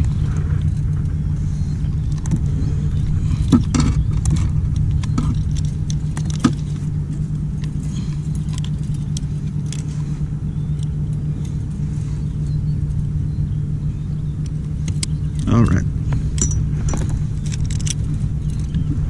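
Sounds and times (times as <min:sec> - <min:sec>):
steady low hum: 0:00.0 - 0:19.0
metal clicks and jingling: 0:01.9 - 0:10.0, 0:10.6 - 0:11.8, 0:14.4 - 0:19.0.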